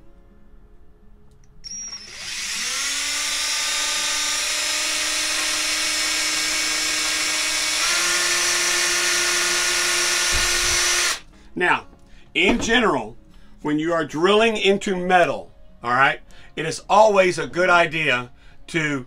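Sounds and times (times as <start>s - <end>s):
drill motor whining: 1.6s - 11.2s.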